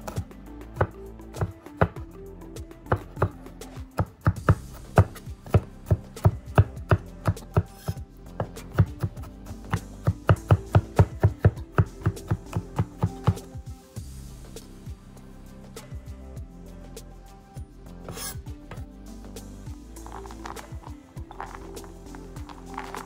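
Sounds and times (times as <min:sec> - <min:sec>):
background music: 0:00.0 - 0:23.0
knife chopping on wooden board: 0:04.0 - 0:13.4.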